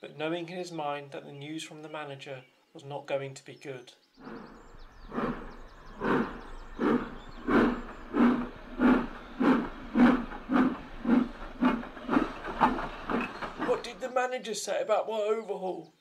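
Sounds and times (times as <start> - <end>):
steam locomotive chuffing: 4.2 - 14.2.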